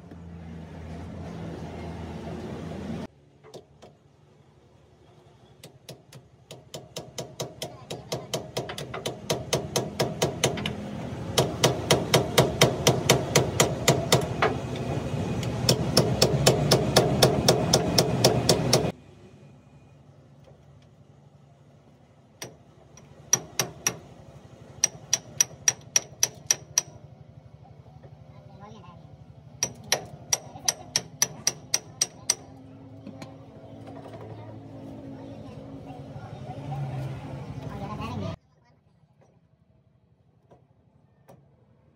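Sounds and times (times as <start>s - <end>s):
hammer ringing on steel: 29.6s - 32.5s.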